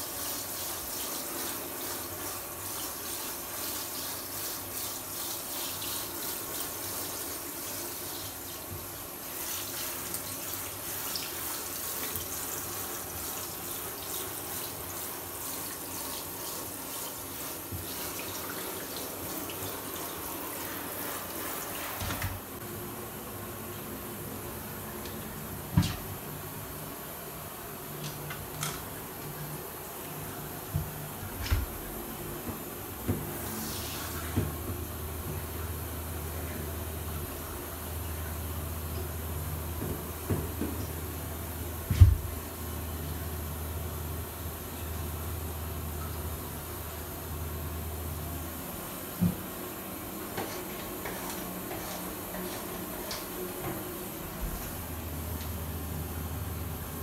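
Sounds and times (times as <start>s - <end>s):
shower head spraying water: 0.0s - 22.3s.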